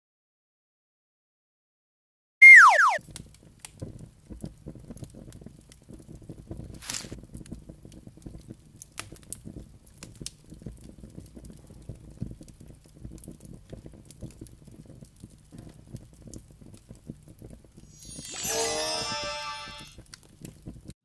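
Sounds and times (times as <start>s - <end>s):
campfire crackling and popping: 3.0s - 18.2s, 20.0s - 21.0s.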